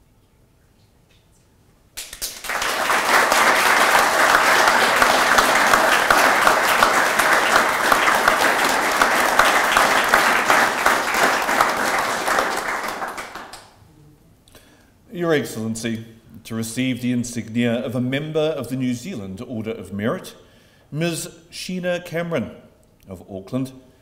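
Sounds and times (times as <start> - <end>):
audience applauding: 2.0 - 13.8.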